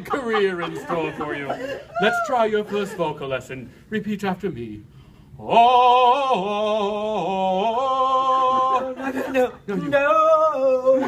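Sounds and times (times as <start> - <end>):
man singing operatic warm-up: 5.4 - 11.0.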